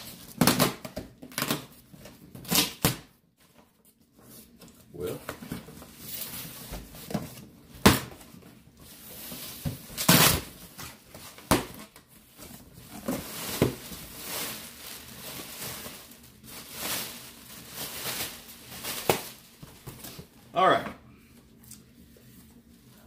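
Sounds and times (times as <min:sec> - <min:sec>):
plastic packaging crinkling: 0:09.1 - 0:20.2.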